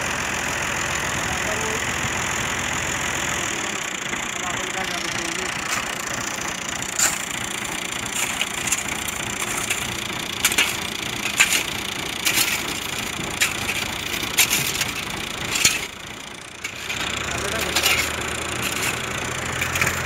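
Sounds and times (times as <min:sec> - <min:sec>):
shovel scraping sand and gravel: 0:05.6 - 0:06.0, 0:06.9 - 0:16.0, 0:16.6 - 0:20.0.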